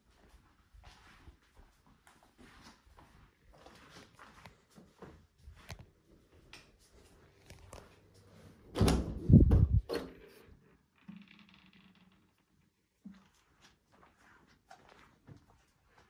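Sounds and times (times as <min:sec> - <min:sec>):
faint footsteps: 0:00.0 - 0:08.5.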